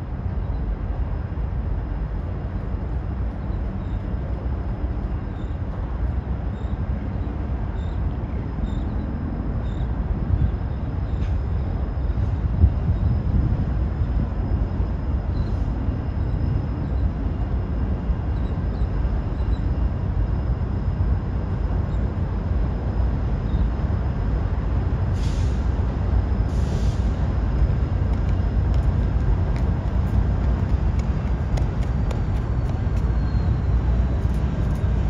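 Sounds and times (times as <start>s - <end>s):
freight train rumbling: 0.0s - 35.0s.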